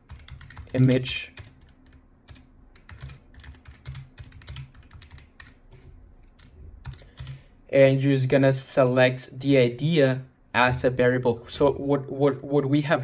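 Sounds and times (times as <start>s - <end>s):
typing on keyboard: 0.1s - 7.4s.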